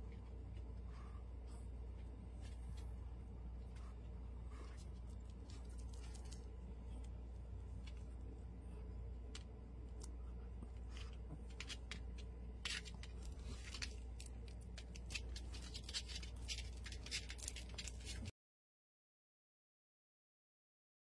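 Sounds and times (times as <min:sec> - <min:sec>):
low steady hum: 0:00.0 - 0:18.3.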